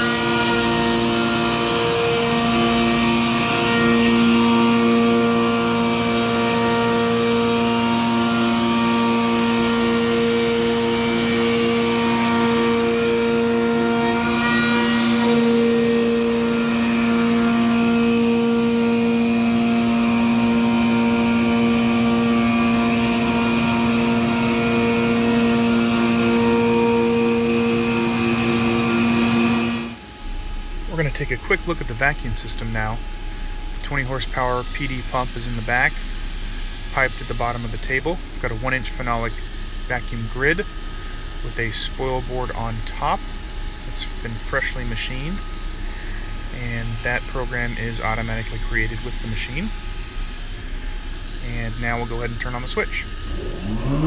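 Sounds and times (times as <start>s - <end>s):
cnc router machinery whirring: 0.0s - 54.0s.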